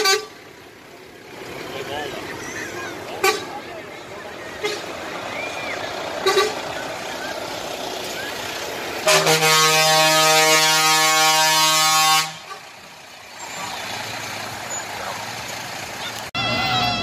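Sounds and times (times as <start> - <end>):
truck air horn blast: 0.0 - 0.4, 3.2 - 3.6, 4.6 - 5.0, 6.2 - 6.8, 9.0 - 12.8
truck engine running: 0.0 - 17.0.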